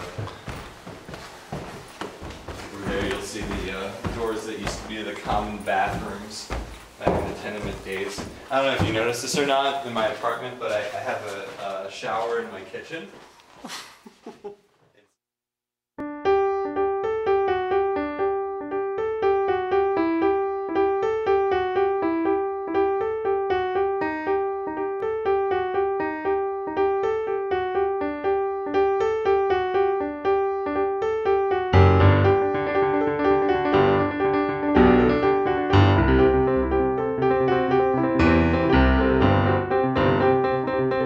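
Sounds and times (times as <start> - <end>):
repeated keyboard notes: 16.0 - 41.0.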